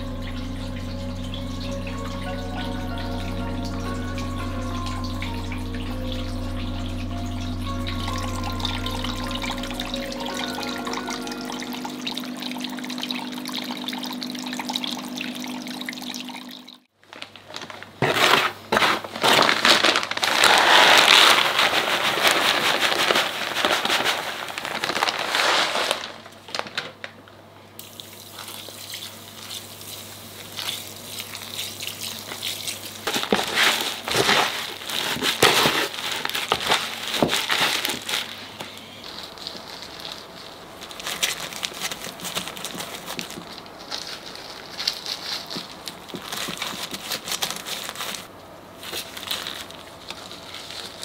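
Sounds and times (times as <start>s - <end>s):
steady hum: 0.0s - 16.8s
water trickling over rocks: 0.0s - 16.9s, 27.8s - 38.4s, 39.0s - 48.3s
gritty soil pouring: 17.1s - 26.3s.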